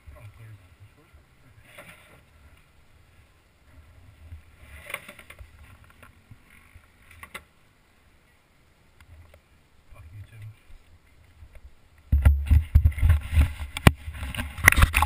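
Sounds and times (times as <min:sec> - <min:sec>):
camera handling rumble: 0:12.2 - 0:15.0.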